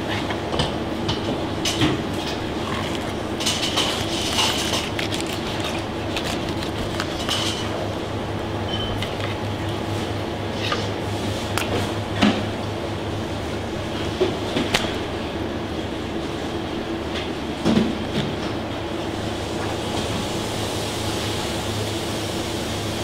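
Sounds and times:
steady low hum: 0.0 - 19.4
knife scraping fish bones: 2.5 - 7.8.

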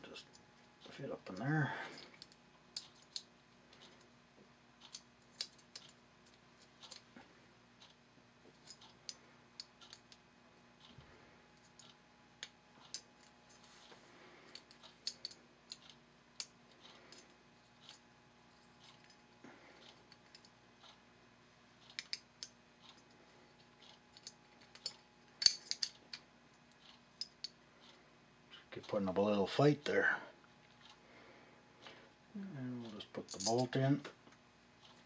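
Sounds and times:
small metal parts clicking: 1.9 - 4.0, 4.8 - 7.0, 8.6 - 10.2, 11.6 - 13.6, 14.5 - 18.0, 19.8 - 20.6, 21.8 - 23.2, 23.8 - 27.6, 33.2 - 33.8.

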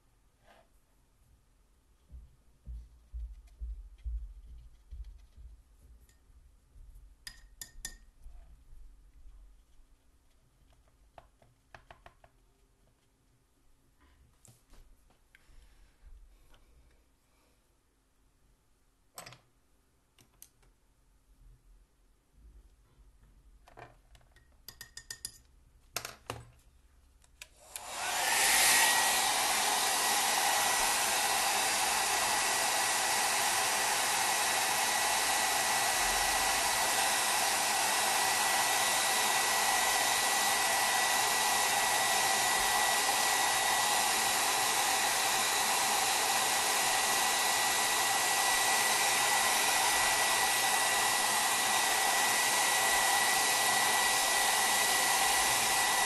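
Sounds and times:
hair dryer blowing: 27.6 - 56.0.

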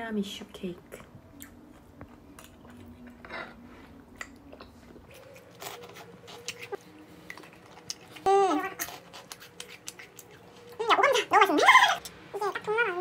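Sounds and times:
person chewing: 1.3 - 12.2.

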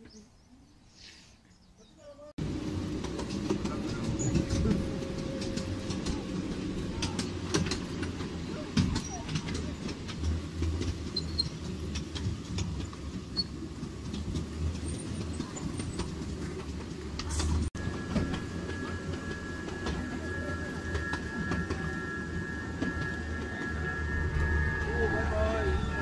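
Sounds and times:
train wheels rumbling: 2.4 - 26.0
high-pitched ring: 17.8 - 26.0.

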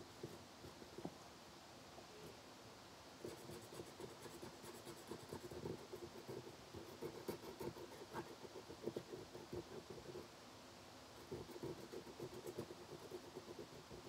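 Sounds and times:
marker scribbling on paper: 3.2 - 10.2, 11.2 - 14.0.

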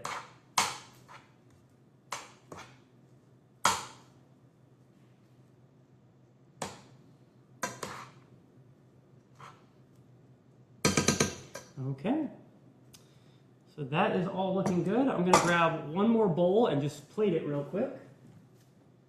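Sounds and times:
spoon scraping cooking pot: 7.6 - 8.2, 9.3 - 9.6.

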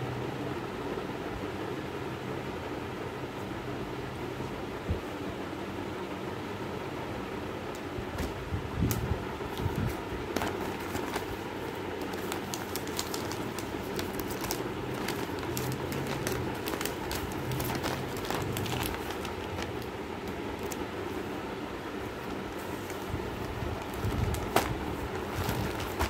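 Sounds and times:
low background hum: 0.0 - 26.0
plastic packaging crinkling: 8.8 - 26.0.

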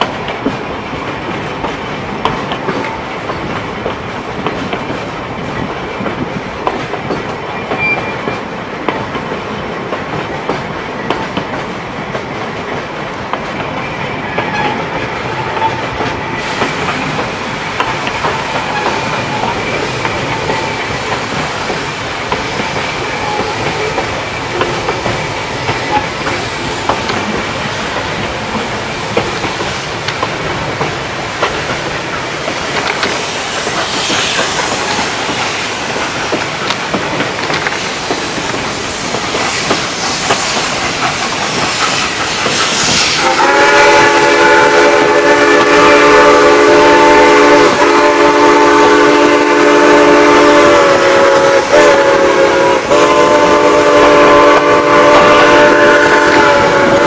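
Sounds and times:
train cars clattering on rails: 0.0 - 57.0
steam locomotive whistle: 41.8 - 57.0.

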